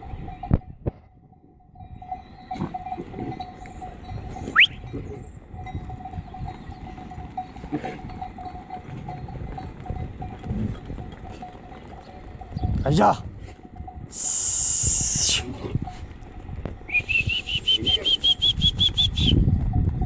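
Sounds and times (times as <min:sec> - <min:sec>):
faint steady ringing tone: 0:00.0 - 0:12.6.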